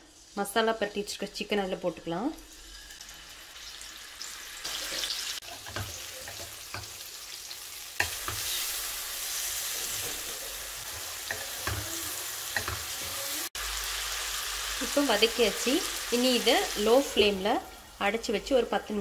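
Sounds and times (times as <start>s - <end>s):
chicken sizzling in oil: 0.0s - 19.0s
spatula scraping pan: 8.0s - 13.5s.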